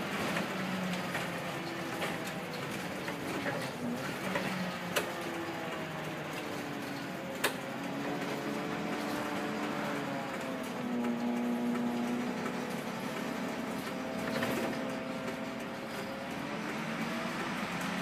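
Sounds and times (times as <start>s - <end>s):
bus diesel engine droning: 0.0s - 18.0s.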